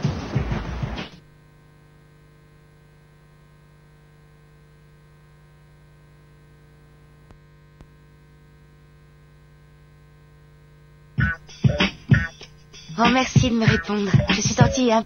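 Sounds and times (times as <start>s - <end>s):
low electrical hum: 1.2s - 14.1s.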